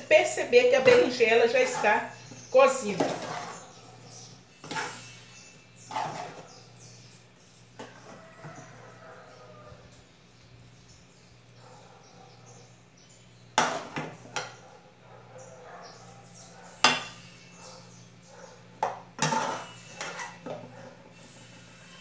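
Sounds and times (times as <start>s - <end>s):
metal spoon scraping pan and dish: 0.2s - 6.7s, 7.8s - 8.8s, 16.8s - 17.4s, 18.8s - 20.6s.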